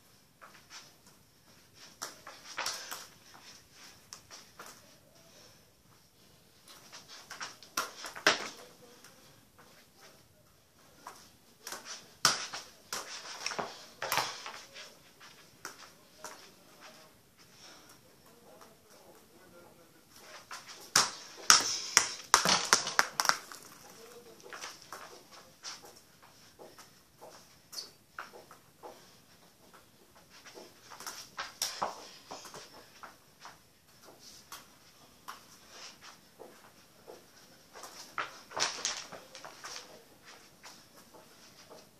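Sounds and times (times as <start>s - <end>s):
football thuds and slaps: 20.9s - 23.8s.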